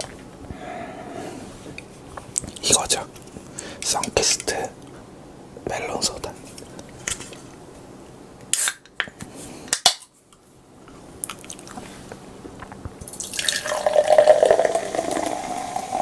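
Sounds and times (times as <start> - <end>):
soda pouring and fizzing: 13.1 - 16.0.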